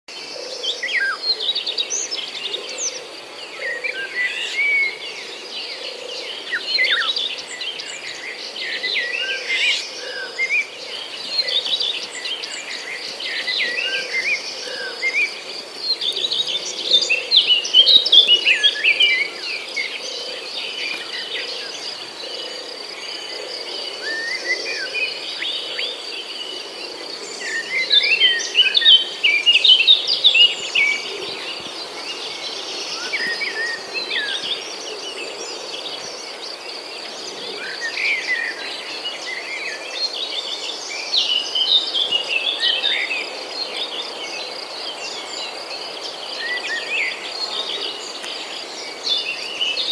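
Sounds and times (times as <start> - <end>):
songbirds chirping: 0.1 - 49.9.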